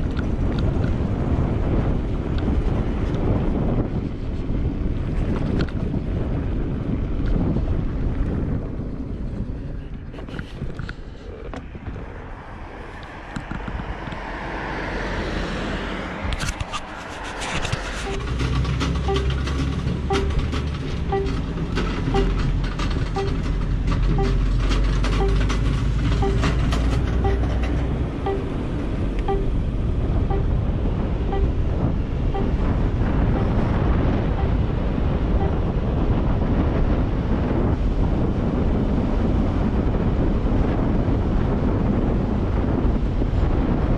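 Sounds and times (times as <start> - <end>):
road rumble: 0.0 - 43.9
wind rush on microphone: 0.0 - 43.9
regular soft beep: 18.1 - 31.7, 32.3 - 32.8, 33.4 - 33.7, 34.3 - 34.7, 35.4 - 35.7.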